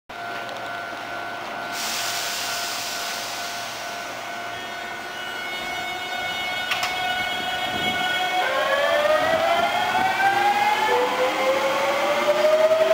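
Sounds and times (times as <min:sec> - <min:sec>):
electric train whine: 0:00.1 - 0:12.9
hiss: 0:01.7 - 0:04.0.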